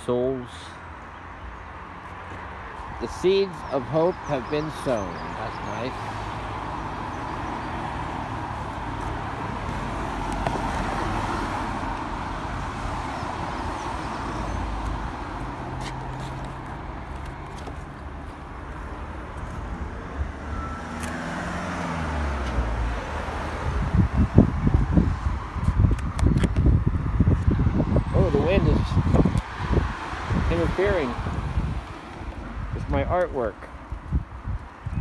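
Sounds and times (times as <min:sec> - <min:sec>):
road traffic passing: 0:00.0 - 0:35.0
vehicle engine passing by: 0:19.1 - 0:25.9.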